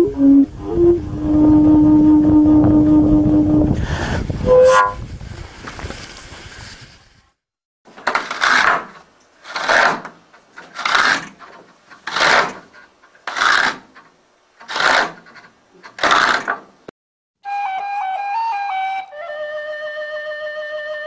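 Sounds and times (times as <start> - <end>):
hand tool scraping wood: 8.0 - 16.8.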